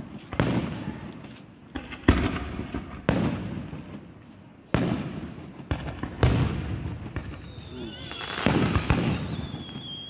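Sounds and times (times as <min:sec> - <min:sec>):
firework booms with echo: 0:00.0 - 0:01.1, 0:01.7 - 0:04.1, 0:04.7 - 0:10.0.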